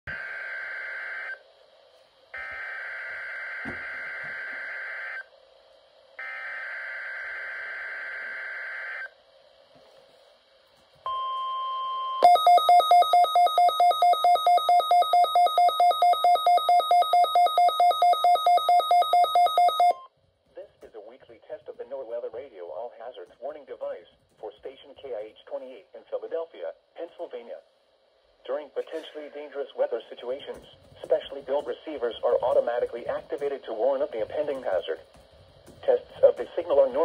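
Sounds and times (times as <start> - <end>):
steady warning tone: 0.1 - 1.5, 2.3 - 5.4, 6.2 - 9.2, 11.1 - 20.1
loud rapid beeping: 12.2 - 20.0.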